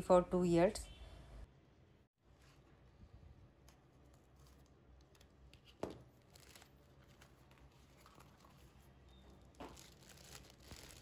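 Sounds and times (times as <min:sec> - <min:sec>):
cardboard and plastic rustling: 0:03.6 - 0:11.0.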